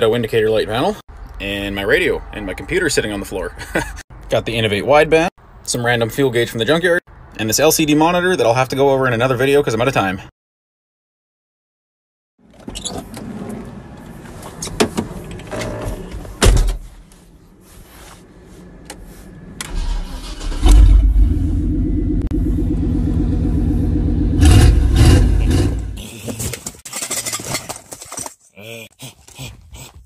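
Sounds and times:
vehicle engine starting and running: 18.2 - 26.0
handling knocks and rustling: 26.2 - 28.5.

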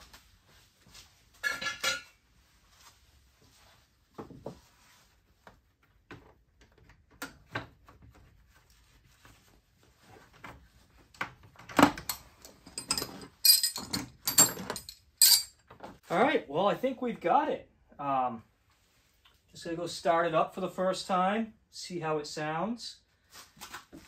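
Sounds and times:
metallic clanks and rattles: 11.8 - 15.6.

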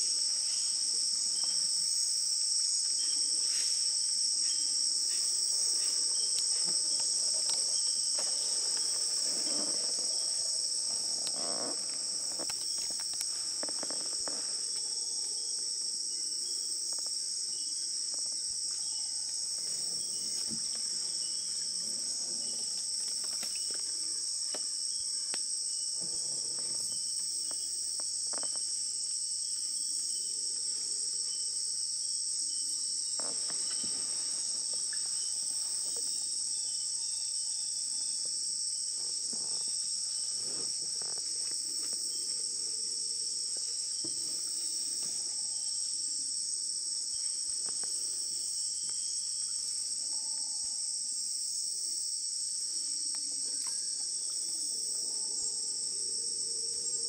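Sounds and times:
insects chorus shrilling: 4.4 - 14.7, 32.6 - 38.1.

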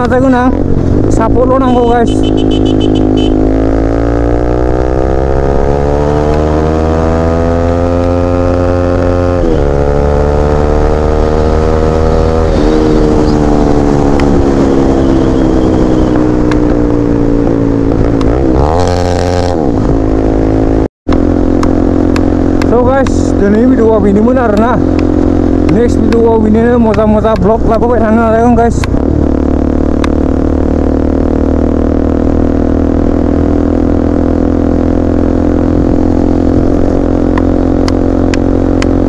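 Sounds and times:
motorcycle engine accelerating: 0.0 - 39.0.

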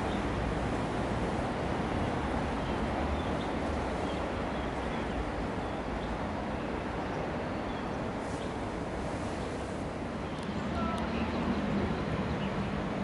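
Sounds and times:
hiss: 8.2 - 9.8.

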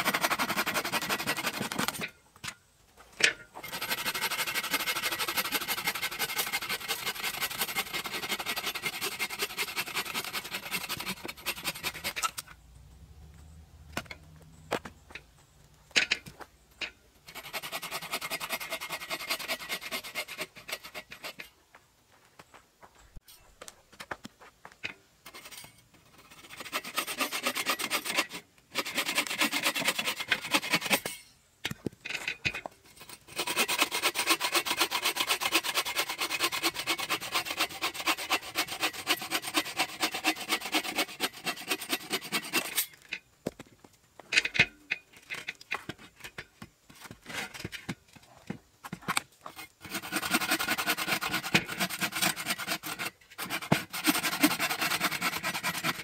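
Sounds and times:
bow saw cutting a log: 0.0 - 2.0, 3.6 - 12.4, 17.3 - 21.4, 26.2 - 31.1, 33.0 - 42.9, 49.5 - 56.0.

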